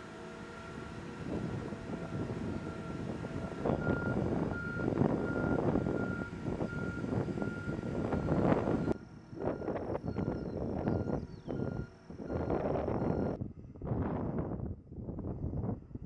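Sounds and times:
heavy vehicle engine running: 0.0 - 13.4
warning alarm beeping: 3.8 - 13.4.

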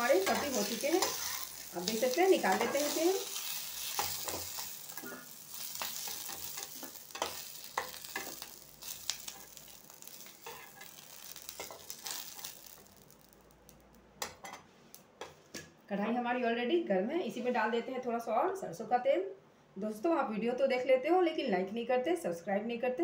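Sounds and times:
spatula scraping pan: 0.0 - 12.5
vegetables sizzling in oil: 0.0 - 14.0.

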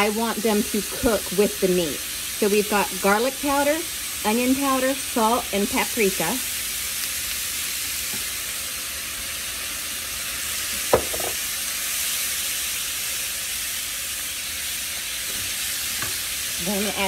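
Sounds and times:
meat sizzling in a skillet: 0.0 - 17.0
sharp knock: 11.0 - 11.4.

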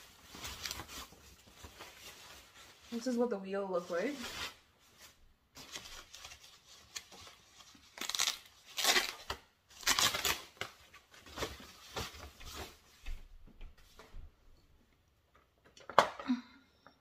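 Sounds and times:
plastic bag crinkling: 0.0 - 12.8.

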